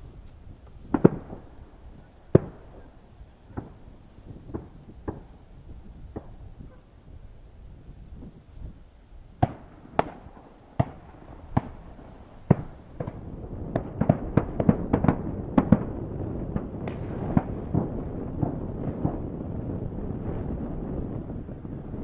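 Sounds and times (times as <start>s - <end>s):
wind on microphone: 0.0s - 22.0s
distant shotgun shots: 0.9s - 1.6s, 2.3s - 2.9s, 9.4s - 15.9s.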